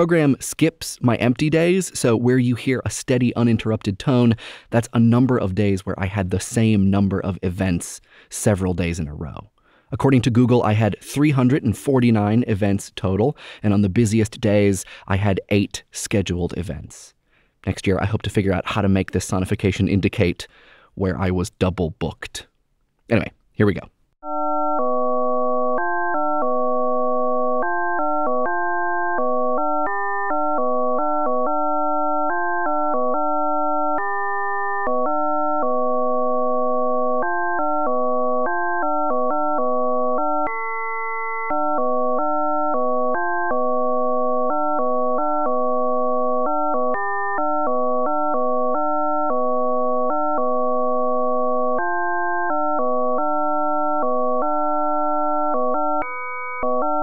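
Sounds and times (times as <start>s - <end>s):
steady electronic tone: 34.8s - 57.0s.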